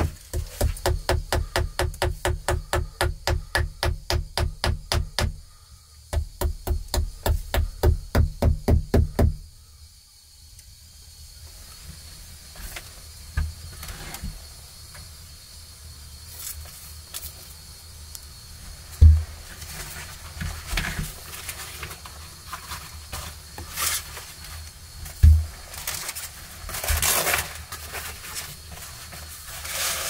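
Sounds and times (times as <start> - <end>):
wooden peg hammered into log: 0.0 - 5.4, 6.1 - 9.4
handling knocks and rustles: 18.7 - 30.0
loud thump: 19.0 - 19.3, 25.2 - 25.5.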